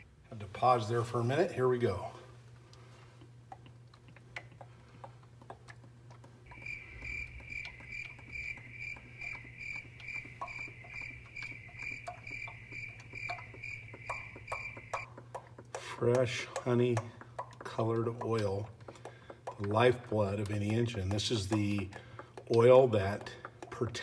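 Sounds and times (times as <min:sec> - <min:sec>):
high even pulsing: 0:06.5 - 0:15.4.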